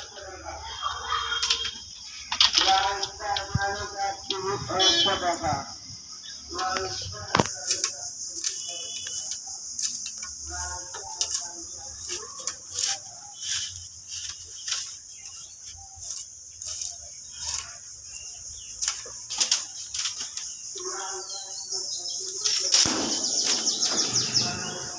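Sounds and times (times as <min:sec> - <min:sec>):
bamboo strips rustling: 0:06.5 - 0:21.6, 0:22.2 - 0:24.9.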